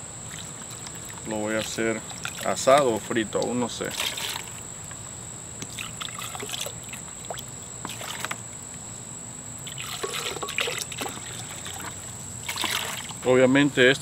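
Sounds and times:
thick liquid dripping into bowl: 0.2 - 8.9.

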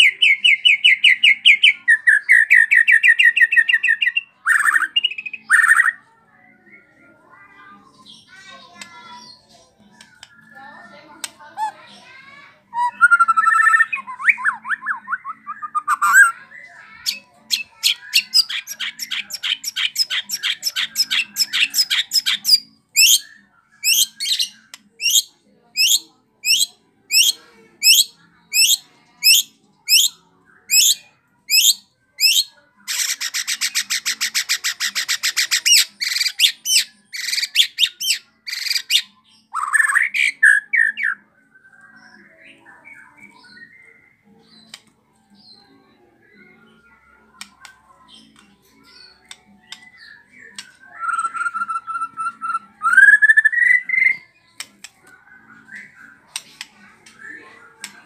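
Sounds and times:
songbird singing varied song: 12.7 - 58.0.

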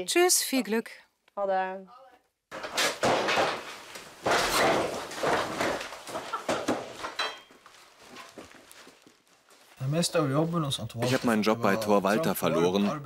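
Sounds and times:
plastic sheeting rustling: 2.6 - 10.0.

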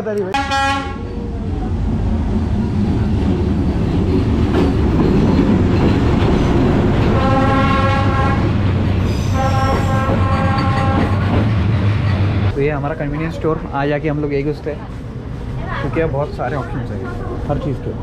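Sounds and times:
train rumbling by: 0.0 - 18.0
train horn blasts: 0.3 - 1.1, 7.1 - 8.5, 9.3 - 11.3.

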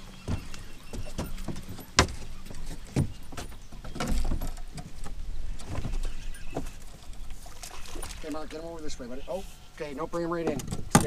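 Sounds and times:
footsteps on boat deck: 0.0 - 8.3
fishing gear clattering: 0.3 - 8.9.

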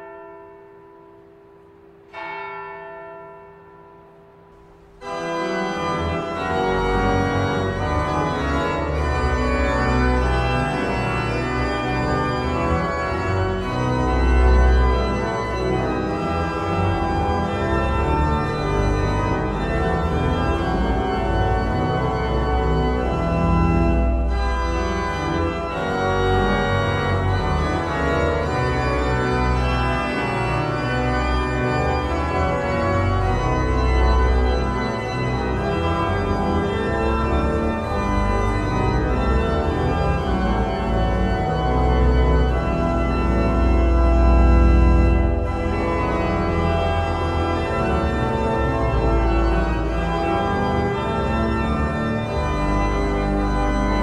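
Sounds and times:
church bell stroke: 0.0 - 9.5
pipe organ playing chords: 3.5 - 54.0.

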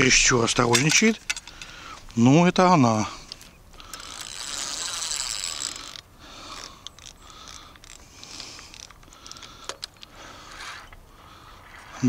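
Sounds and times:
fishing reel whirring and ticking: 3.7 - 9.9.

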